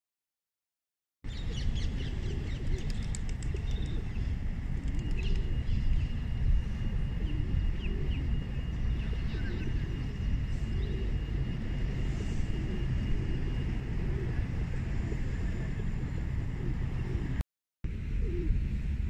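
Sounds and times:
small birds chirping: 0:01.3 - 0:06.2.

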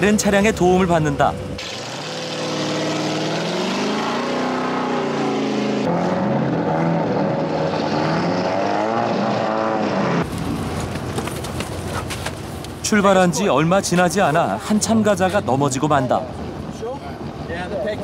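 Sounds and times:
racing engines revving: 0:01.6 - 0:10.8.

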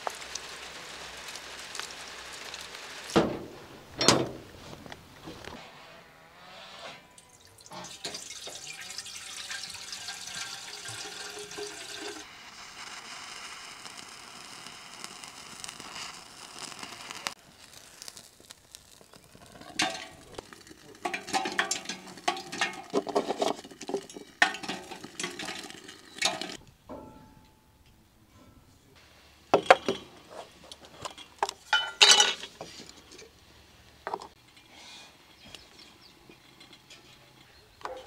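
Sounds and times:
water pouring into metal urn: 0:07.2 - 0:12.3, 0:18.9 - 0:26.6.

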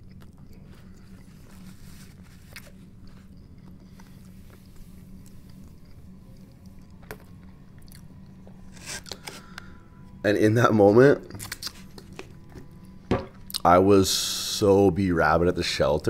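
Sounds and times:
man chewing food: 0:00.0 - 0:10.2, 0:11.3 - 0:13.7
steady low hum: 0:00.0 - 0:16.0.

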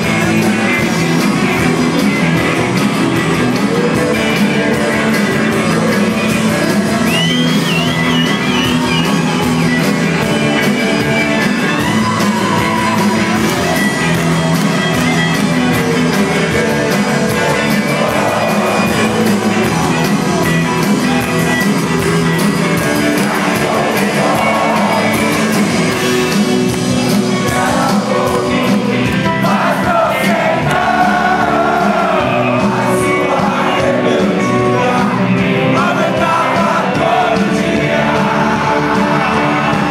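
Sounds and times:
person singing: 0:00.0 - 0:09.0, 0:15.7 - 0:39.9
drums: 0:00.0 - 0:39.9
electric guitars: 0:00.0 - 0:39.9.

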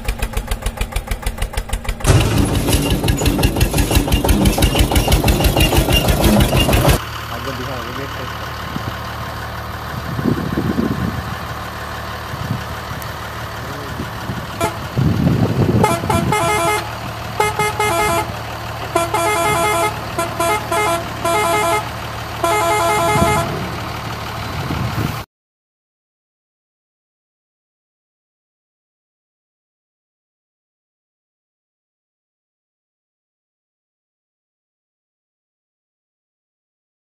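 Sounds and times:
diesel truck engine running: 0:00.0 - 0:25.2
truck horn short blasts: 0:14.6 - 0:15.1, 0:15.7 - 0:23.8.

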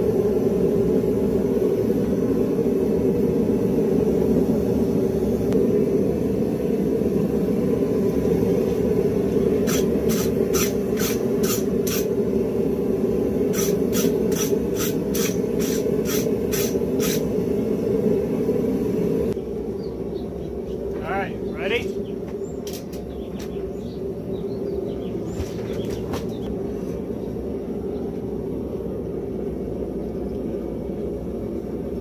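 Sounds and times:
scraping strokes on hot steel: 0:07.8 - 0:12.6, 0:13.2 - 0:17.8.

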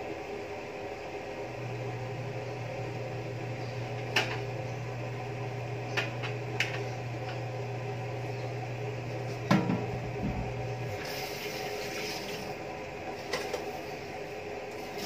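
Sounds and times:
steady low hum: 0:00.0 - 0:15.0
broth boiling hard: 0:09.4 - 0:15.0.

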